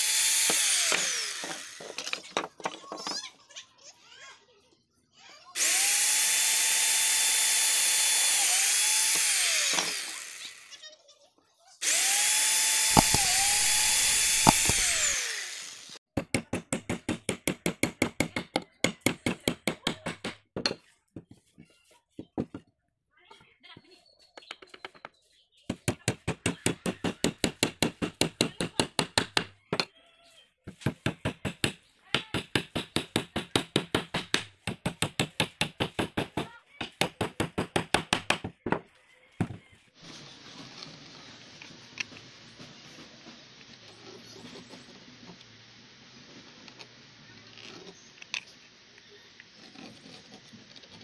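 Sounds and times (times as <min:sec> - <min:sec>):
electric drill boring into wood: 0:00.0 - 0:02.2, 0:05.6 - 0:10.8, 0:11.8 - 0:16.0
hammer nailing wood: 0:12.8 - 0:15.2, 0:16.2 - 0:20.6, 0:25.8 - 0:29.6, 0:30.8 - 0:38.6.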